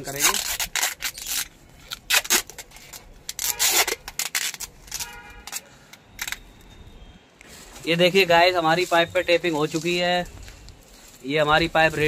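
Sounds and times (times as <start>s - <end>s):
tape pulled off roll rasping: 0.1s - 6.5s.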